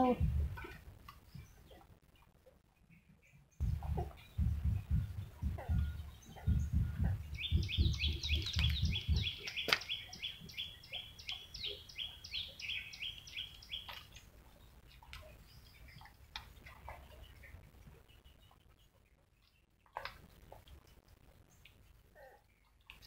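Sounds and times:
soft low thumps: 0.0s - 1.5s, 3.6s - 9.8s
bird chirping: 2.8s - 16.2s.

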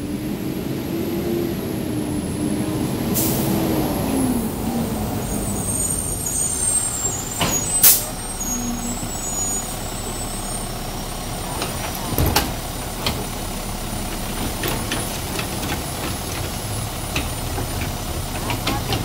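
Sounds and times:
garbage truck diesel engine: 0.0s - 19.0s
air-brake hisses: 3.2s - 3.6s.

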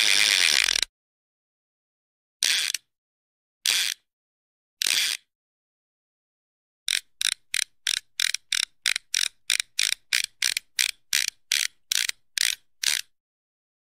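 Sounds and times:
hissing ratchet-like clicks: 0.0s - 0.9s, 2.4s - 2.8s, 3.7s - 4.0s, 6.9s - 13.1s.

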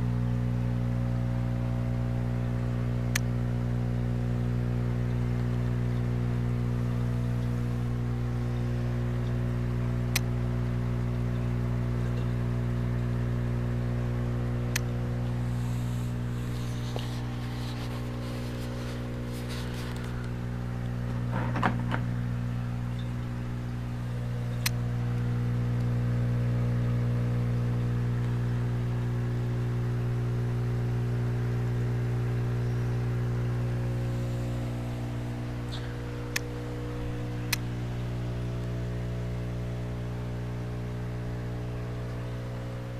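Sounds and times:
electric pump hum: 0.0s - 42.9s
brief rustle: 15.8s - 20.4s
sharp clicks: 35.6s - 36.6s, 37.2s - 37.8s.

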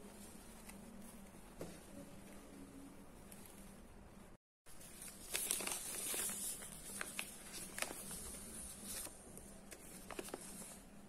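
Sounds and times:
label crinkling: 4.8s - 10.8s.

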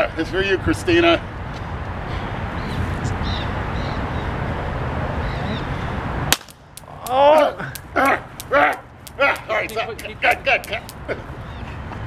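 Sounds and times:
taser firing pop: 6.3s - 6.9s
sharp clicks: 6.3s - 11.0s
man shouting: 6.9s - 10.9s.

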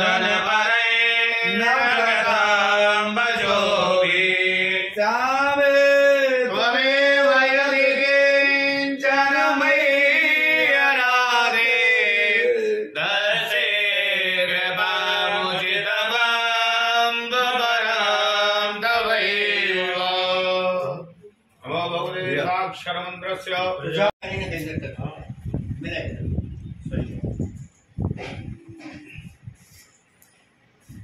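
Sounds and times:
priests chanting: 0.0s - 21.2s.

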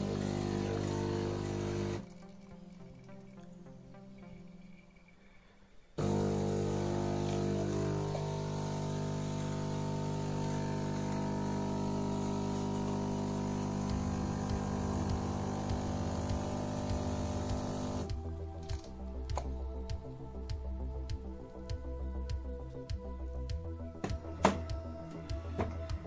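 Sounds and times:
espresso machine pump humming: 0.0s - 2.1s, 6.0s - 18.2s.

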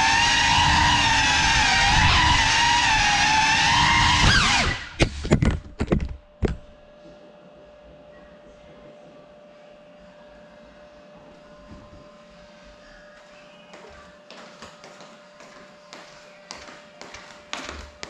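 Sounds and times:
drone motors whining: 0.0s - 5.3s.

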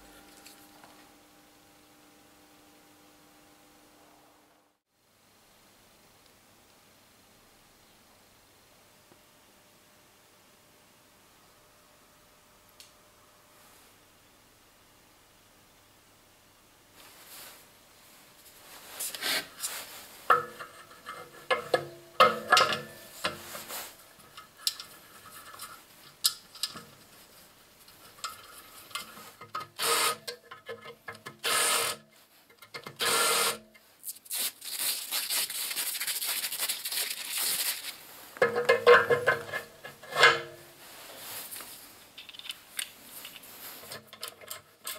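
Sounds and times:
metal scraping and rubbing: 19.0s - 31.9s, 36.5s - 41.6s
metal parts knocking and clinking: 42.2s - 43.4s.

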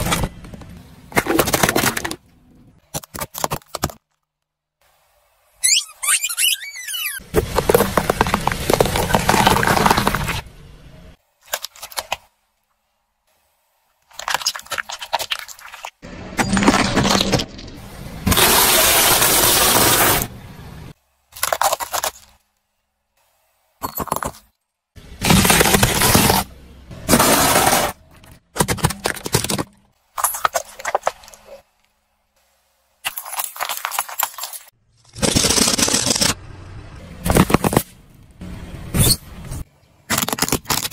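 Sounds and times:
crunching and snapping plastic: 0.0s - 2.2s, 28.5s - 31.4s, 40.1s - 40.9s
car tyre crushing plastic toys: 0.0s - 4.5s, 7.2s - 10.5s, 21.3s - 22.5s, 23.8s - 31.6s, 33.0s - 36.4s, 37.2s - 38.1s, 40.0s - 40.9s.

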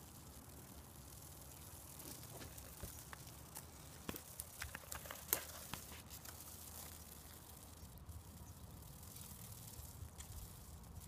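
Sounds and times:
dry leaves crackling and rustling: 0.0s - 11.0s.

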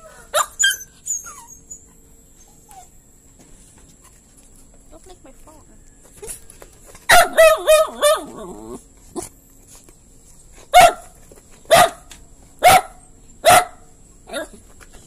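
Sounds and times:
dog barking: 7.1s - 8.4s, 10.7s - 14.6s.

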